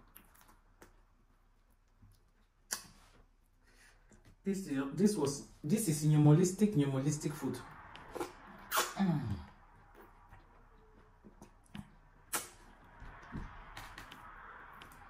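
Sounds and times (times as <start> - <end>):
wet mouth clicks and smacks: 2.1 - 3.2, 7.9 - 9.0, 11.2 - 12.8.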